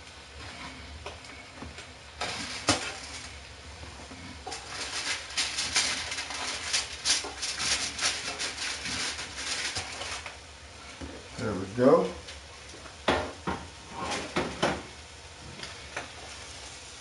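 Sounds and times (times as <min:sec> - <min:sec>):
metal spatula scraping baking sheet: 0:00.4 - 0:01.4, 0:02.2 - 0:10.3, 0:13.8 - 0:14.4
foil crinkling: 0:02.2 - 0:10.4.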